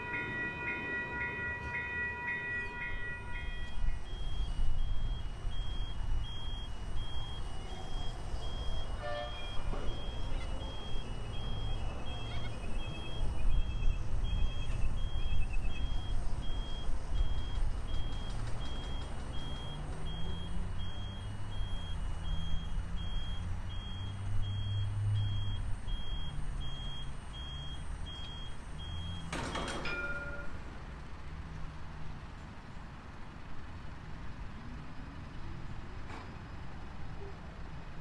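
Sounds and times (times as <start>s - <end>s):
warning beeper: 2.6s - 29.3s.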